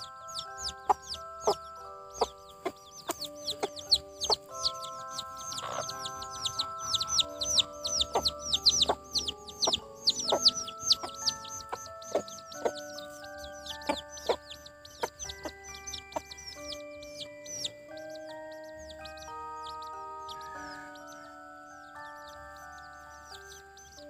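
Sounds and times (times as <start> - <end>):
hen clucking: 0.0 - 16.8
background music of held notes: 0.0 - 24.0
chicks peeping: 0.0 - 24.0.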